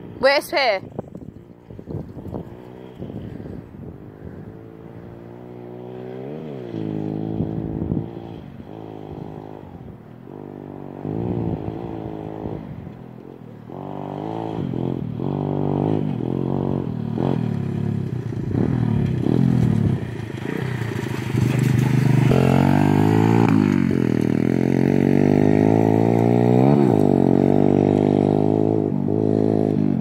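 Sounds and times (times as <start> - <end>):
motorbike engine revving: 1.4 - 30.0.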